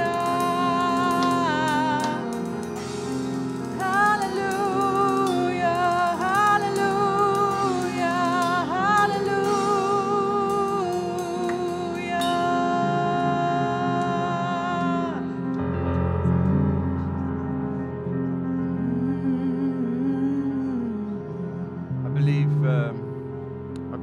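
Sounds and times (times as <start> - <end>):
woman singing worship melody: 0.0 - 15.6, 18.6 - 22.0
sustained keyboard chords: 0.0 - 24.0.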